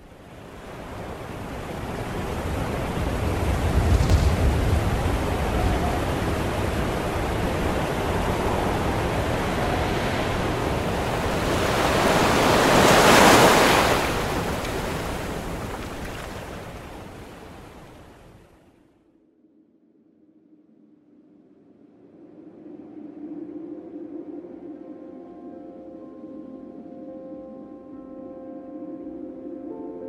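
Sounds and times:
ocean waves rushing: 0:00.0 - 0:18.4.

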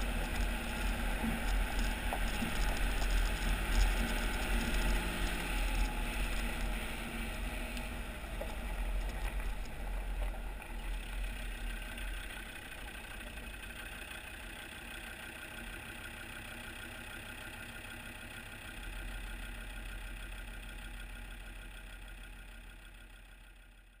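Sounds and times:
tyres on gravel: 0:00.0 - 0:14.3
diesel engine running: 0:00.0 - 0:23.9.

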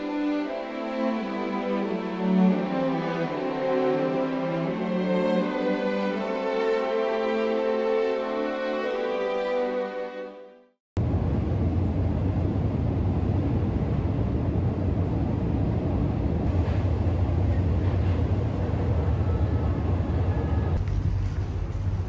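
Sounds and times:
low hum: 0:11.0 - 0:22.0
train car rumbling: 0:11.0 - 0:22.0.

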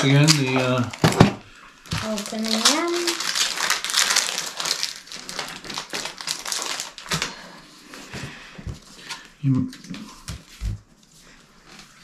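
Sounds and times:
foil wrapper crinkling and tearing: 0:00.0 - 0:07.6.

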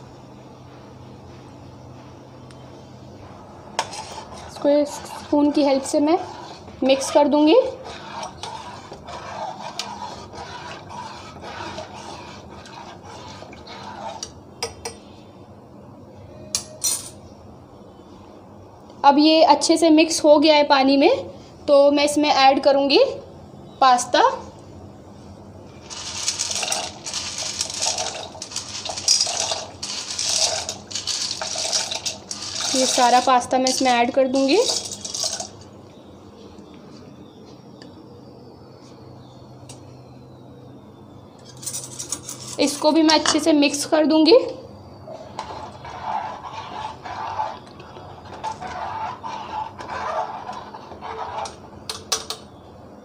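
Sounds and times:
spoon stirring pasta in water: 0:03.8 - 0:14.8, 0:25.8 - 0:35.6, 0:45.3 - 0:52.1.

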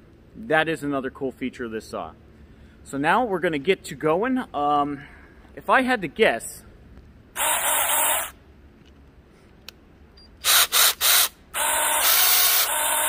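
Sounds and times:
mini chainsaw whirring: 0:07.4 - 0:08.4, 0:10.4 - 0:13.0.

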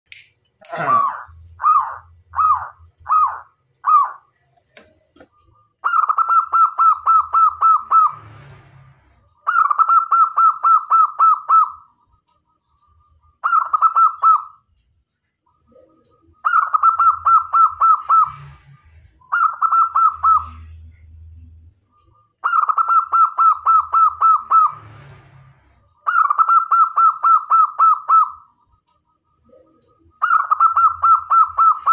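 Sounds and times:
dove cooing: 0:19.3 - 0:20.7, 0:29.4 - 0:31.9.

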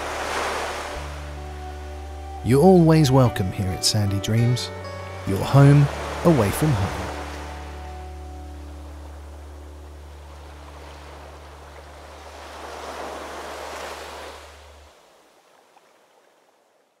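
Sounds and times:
sea waves washing in: 0:00.0 - 0:02.2, 0:04.8 - 0:16.5
held low music note: 0:00.9 - 0:11.8.

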